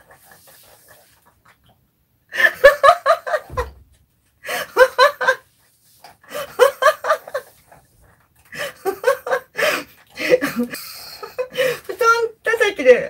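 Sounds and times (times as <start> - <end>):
woman laughing: 2.4 - 3.7, 4.5 - 5.4, 6.3 - 7.5, 8.6 - 12.0.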